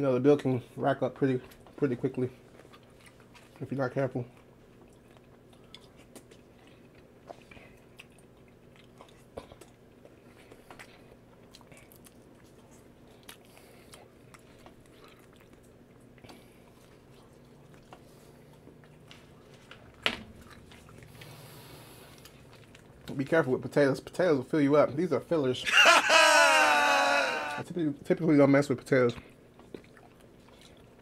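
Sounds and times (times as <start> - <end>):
person chewing: 2.4 - 3.7, 4.3 - 23.1, 29.3 - 31.0.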